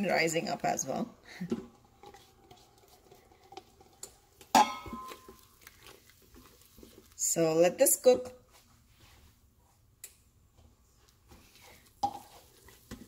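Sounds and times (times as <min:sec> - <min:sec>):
spatula scraping in a metal pot: 0:01.7 - 0:06.7.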